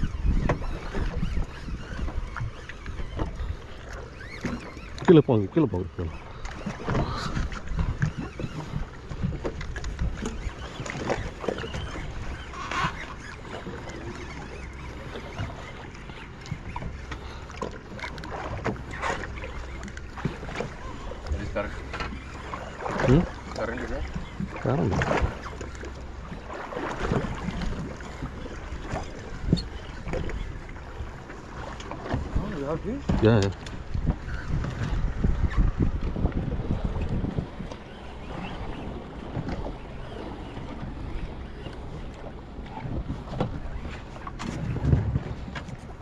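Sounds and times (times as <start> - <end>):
wind on microphone: 0.0 - 4.6, 6.0 - 13.0, 32.2 - 46.0
water lapping against boat hull: 0.0 - 46.0.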